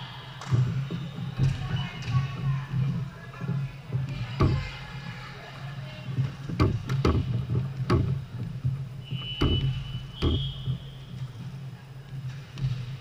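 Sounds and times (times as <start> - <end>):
steady low hum: 0.1 - 13.0
volleyball thudding: 9.1 - 11.0.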